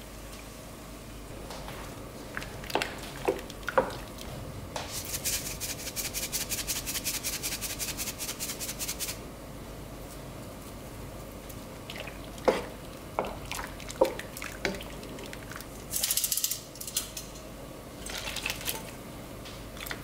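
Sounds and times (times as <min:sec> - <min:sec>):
salt shaker rattling: 0:04.9 - 0:09.2.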